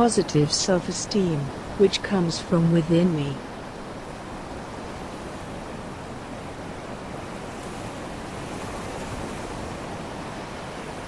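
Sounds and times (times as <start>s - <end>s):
ocean waves washing onto beach: 0.0s - 11.0s.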